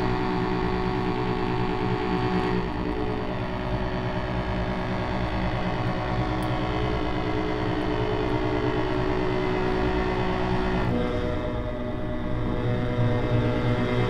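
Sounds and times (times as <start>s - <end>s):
accordion drone: 0.0s - 14.0s.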